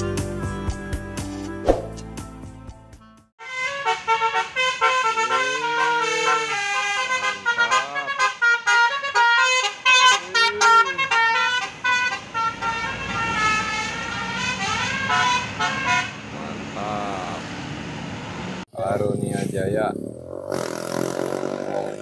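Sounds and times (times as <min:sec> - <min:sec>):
bus musical horn melody: 0:03.4 - 0:16.6.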